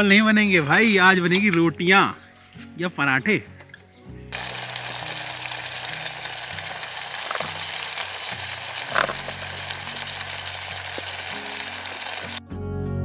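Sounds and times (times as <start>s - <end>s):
curry sizzling and bubbling: 4.3s - 12.4s.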